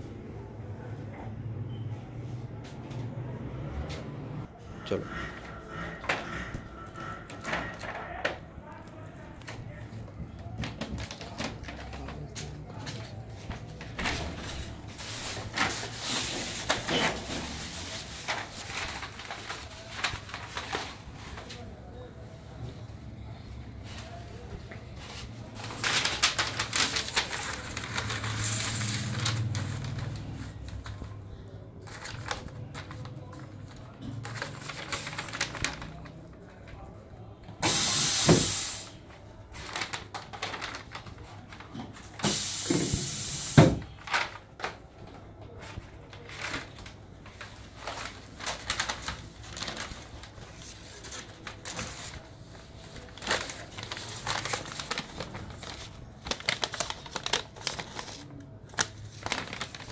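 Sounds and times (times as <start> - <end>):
plastic sheet rattling and crinkling: 9.6 - 21.9, 24.0 - 31.2, 31.8 - 37.8, 38.4 - 59.9
press hissing bursts: 37.6 - 38.9.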